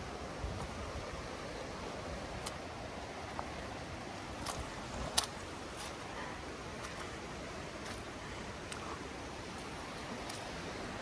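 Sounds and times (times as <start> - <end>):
river water rushing: 0.0 - 11.0
footsteps on muddy path: 4.3 - 10.9.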